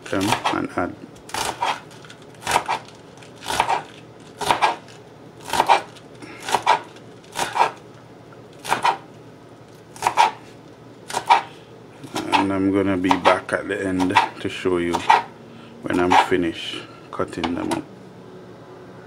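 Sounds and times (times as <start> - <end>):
knife chopping on plastic board: 0.1 - 0.6, 1.3 - 1.8, 2.4 - 7.8, 8.6 - 9.0, 10.0 - 10.5, 11.1 - 13.4, 14.0 - 15.3, 15.9 - 16.3.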